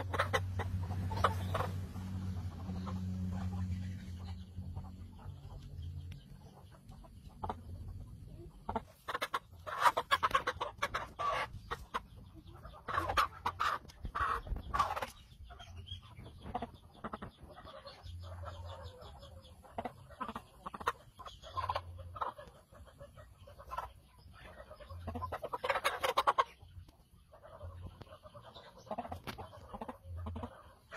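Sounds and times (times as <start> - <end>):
chicken squawking and clucking: 0.0 - 4.8, 7.0 - 15.3, 16.4 - 26.7.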